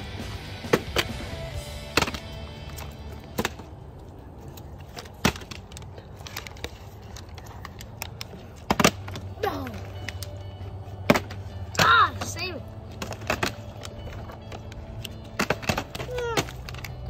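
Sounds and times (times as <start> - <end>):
background music: 0.0 - 4.1, 8.8 - 17.0.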